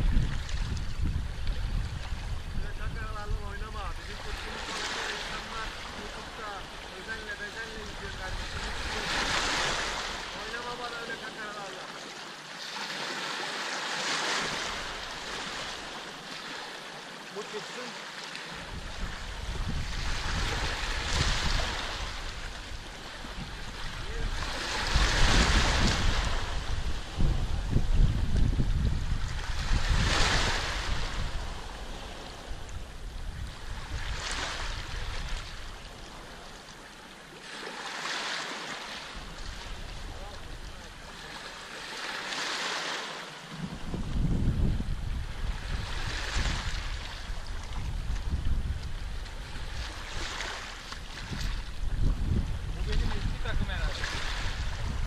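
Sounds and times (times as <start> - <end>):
wind rumble on microphone: 0.0 - 10.8, 18.6 - 36.6, 39.1 - 41.4, 43.5 - 55.0
small waves breaking on beach: 0.0 - 55.0.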